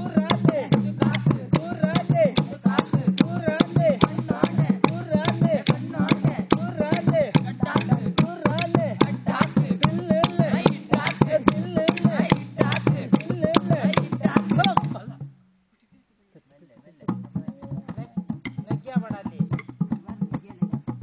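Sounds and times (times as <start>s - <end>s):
drum beating quick strokes: 17.1s - 21.0s.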